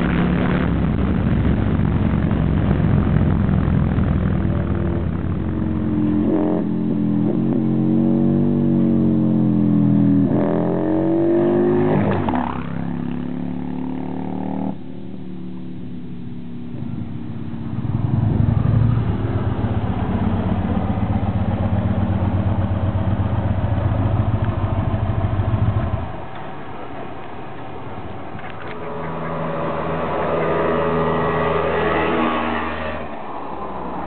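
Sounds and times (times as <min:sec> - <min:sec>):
motorcycle engine running close by: 0:00.0 - 0:26.4
motorcycle passing: 0:02.4 - 0:34.0.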